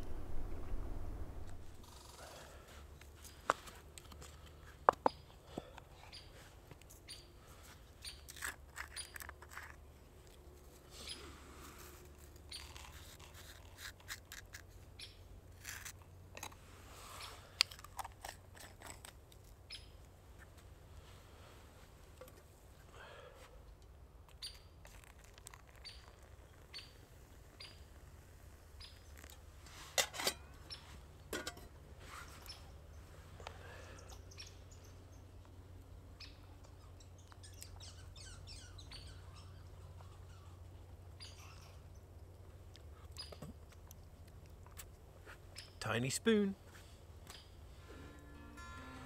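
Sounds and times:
low steady rumble: 0:00.0 - 0:02.6
faint bird chirps: 0:36.2 - 0:42.1.

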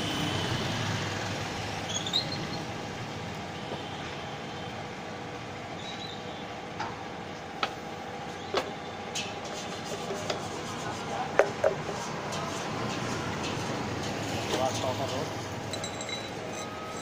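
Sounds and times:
street traffic noise: 0:00.0 - 0:17.0
metallic clicks and clinks: 0:15.7 - 0:17.0.

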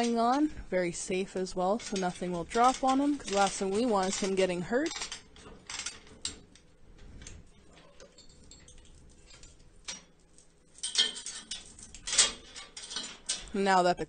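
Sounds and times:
chain hoist clicking: 0:01.6 - 0:06.6, 0:10.8 - 0:13.5
chain rattling: 0:01.6 - 0:13.5.

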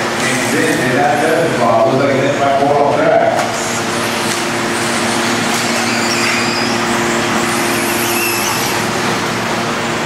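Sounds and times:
steady low hum: 0:00.0 - 0:10.0
toy car motor whines: 0:04.8 - 0:08.9.

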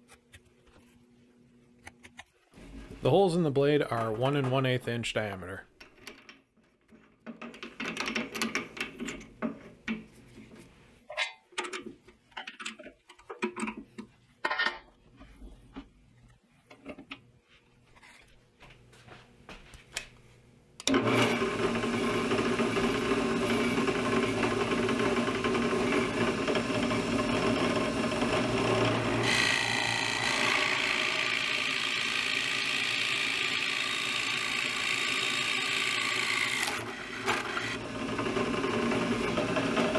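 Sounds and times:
drill press running: 0:20.8 - 0:39.9
drill bit cutting wood: 0:20.9 - 0:39.9.

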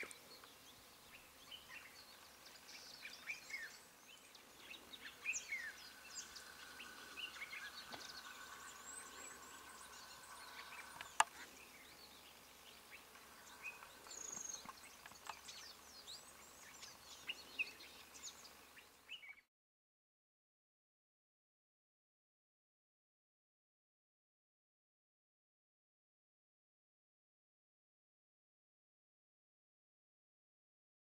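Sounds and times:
birds chirping: 0:00.0 - 0:19.5
steady high drone: 0:03.7 - 0:14.4.

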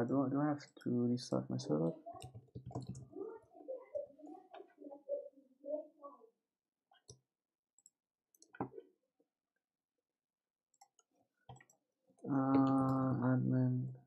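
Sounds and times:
computer keyboard and mouse clicks: 0:02.2 - 0:03.1, 0:10.8 - 0:11.8.

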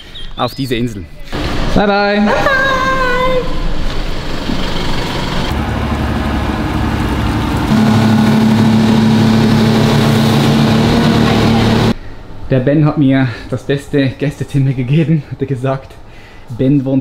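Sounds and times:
outboard motors running: 0:05.2 - 0:12.0.

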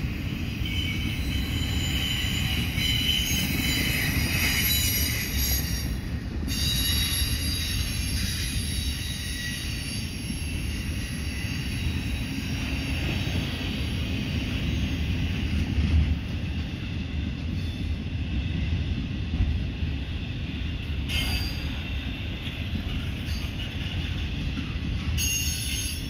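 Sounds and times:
train wheels rumbling on rail: 0:00.0 - 0:26.0
high-pitched wheel squeal: 0:00.6 - 0:12.6.

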